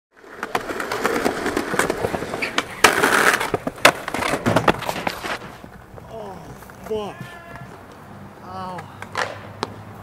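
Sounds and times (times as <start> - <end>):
skateboard wheels rolling on concrete: 0.1 - 10.0.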